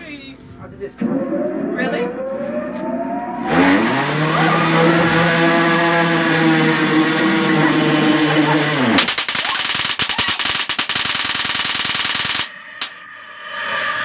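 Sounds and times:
motor revving: 0:03.3 - 0:09.0.

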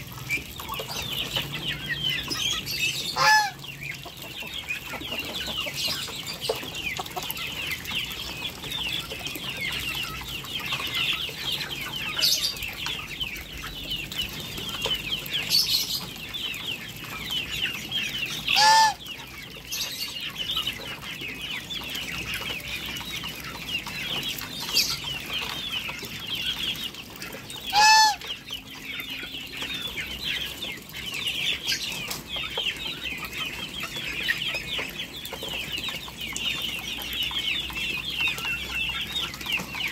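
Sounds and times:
chatter of geese and ducks: 0:00.0 - 0:13.8, 0:18.2 - 0:39.9
goose honking loudly: 0:03.2 - 0:03.6, 0:18.5 - 0:19.0, 0:27.7 - 0:28.3.

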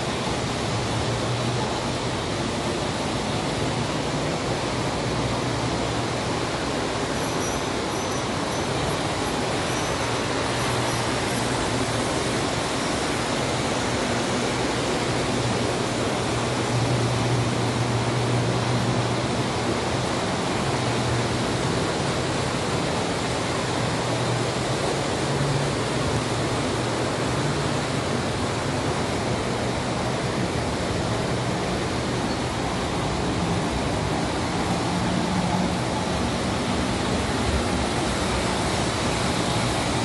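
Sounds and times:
model trains on metal track: 0:00.0 - 0:40.0.

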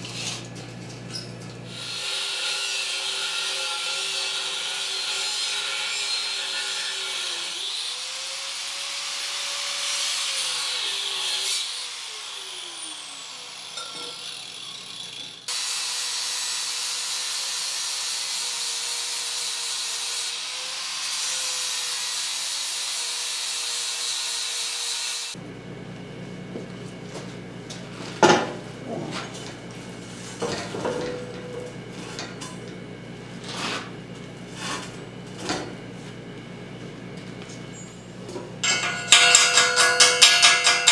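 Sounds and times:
angle grinder cutting steel pipe: 0:01.7 - 0:25.4, 0:38.6 - 0:40.9.

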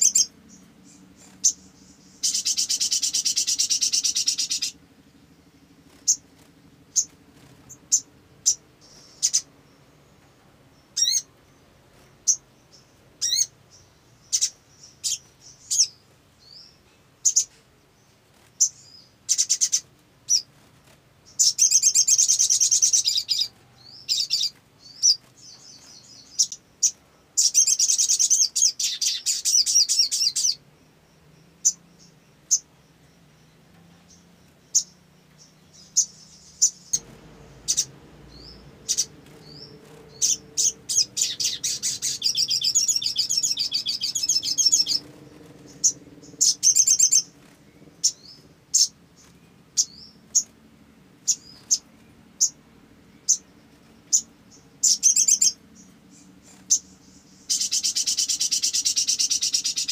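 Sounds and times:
rapid chattering bird song: 0:00.0 - 0:59.9
bird chirping and whistling: 0:37.7 - 0:45.1, 0:45.8 - 0:47.3.

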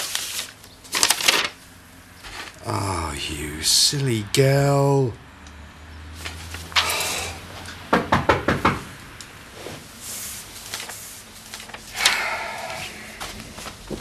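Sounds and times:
knocks on a door: 0:07.9 - 0:08.9.

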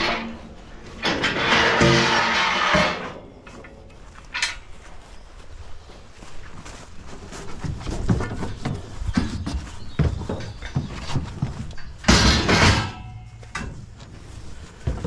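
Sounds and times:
loud metallic clatter with ringing: 0:01.0 - 0:03.4, 0:12.1 - 0:13.4.

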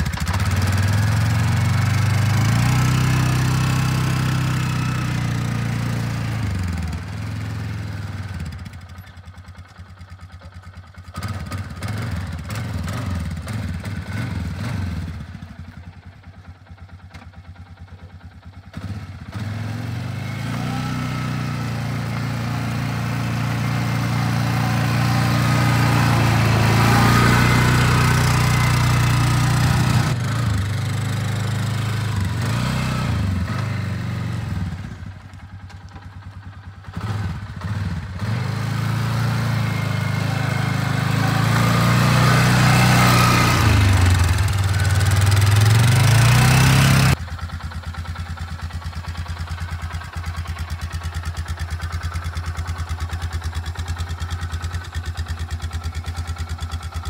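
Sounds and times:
atv engine running: 0:00.0 - 0:57.0.

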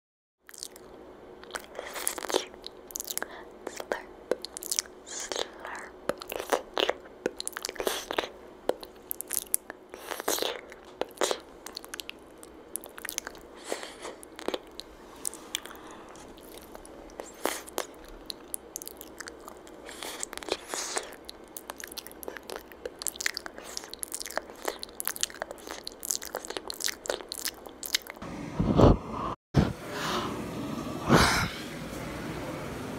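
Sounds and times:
wet lip smacks: 0:00.5 - 0:28.2.

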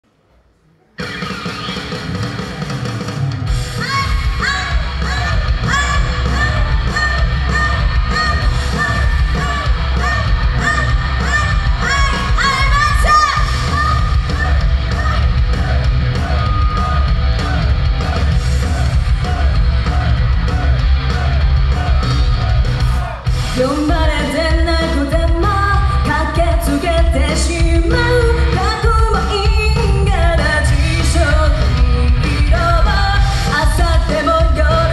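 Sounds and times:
amplified pop-rock music: 0:01.0 - 0:34.9
woman singing into microphone: 0:23.6 - 0:34.9.

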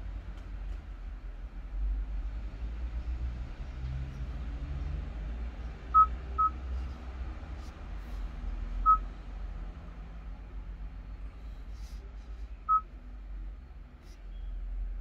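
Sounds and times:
touchscreen beeps: 0:06.0 - 0:06.6.

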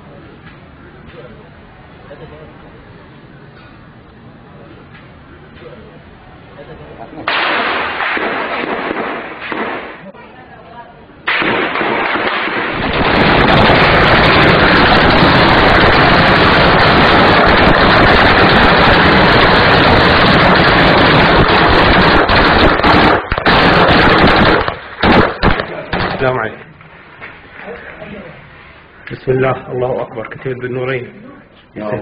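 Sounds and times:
heavy gunfire: 0:07.3 - 0:10.0, 0:11.3 - 0:26.5.

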